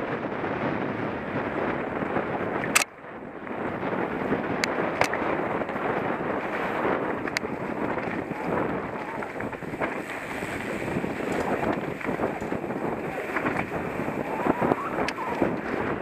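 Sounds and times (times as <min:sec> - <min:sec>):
wind rushing over microphone: 0:00.0 - 0:16.0
sharp clicks: 0:02.7 - 0:03.0
mountain bike rattling and knocking: 0:04.2 - 0:14.2.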